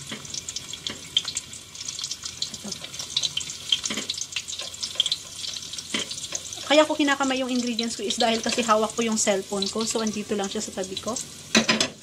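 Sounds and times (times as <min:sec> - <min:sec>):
garlic sizzling in hot oil: 0:00.0 - 0:12.0.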